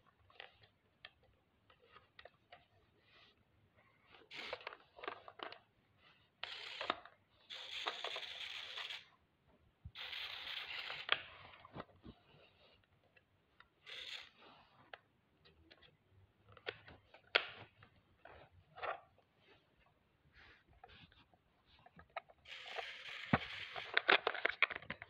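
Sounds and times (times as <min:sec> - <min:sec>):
toy car motors whirring: 0:04.2 - 0:05.2, 0:06.4 - 0:09.1, 0:09.9 - 0:11.3, 0:13.8 - 0:14.4, 0:22.4 - 0:24.3.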